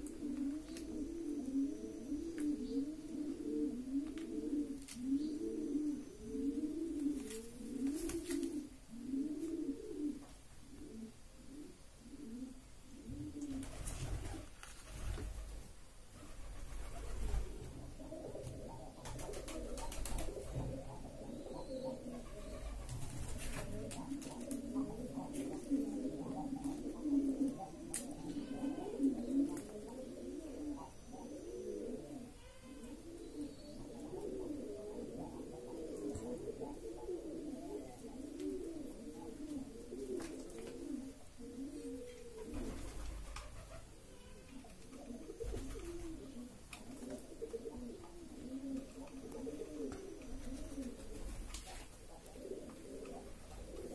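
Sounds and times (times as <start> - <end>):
pigeons cooing: 0.0 - 15.6, 16.2 - 53.9
parakeet muttering and cooing: 23.7 - 40.0.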